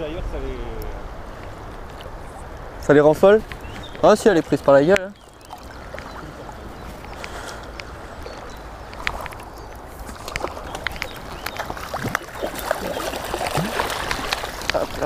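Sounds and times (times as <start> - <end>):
river water flowing: 0.0 - 15.0
fish splashing at surface: 10.0 - 15.0.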